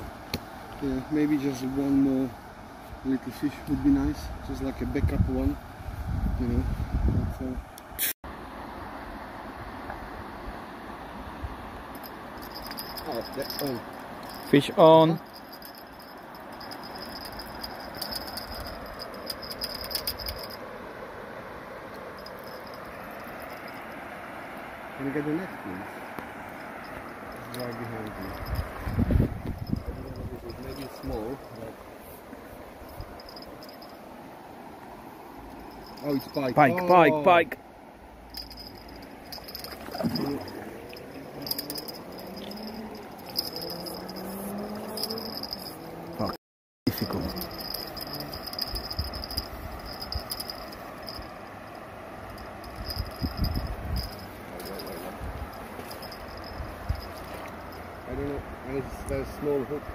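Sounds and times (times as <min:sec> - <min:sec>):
fishing reel clicking: 0:15.2 - 0:20.6, 0:41.4 - 0:44.3, 0:44.9 - 0:45.7, 0:47.0 - 0:51.2.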